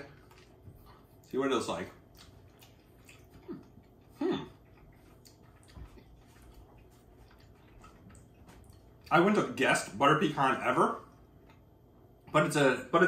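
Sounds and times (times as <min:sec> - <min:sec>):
man chewing: 0:00.0 - 0:09.1, 0:11.0 - 0:11.8.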